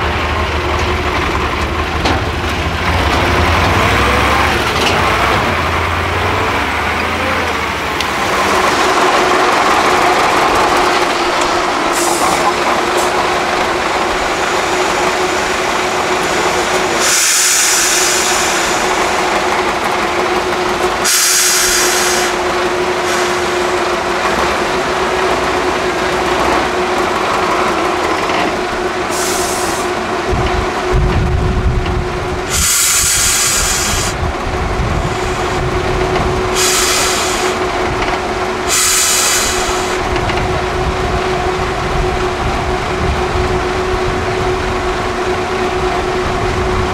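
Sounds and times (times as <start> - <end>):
deep engine rumble: 0.0 - 46.9
diesel engine working under load: 0.0 - 46.9
short sharp hisses: 38.7 - 40.0.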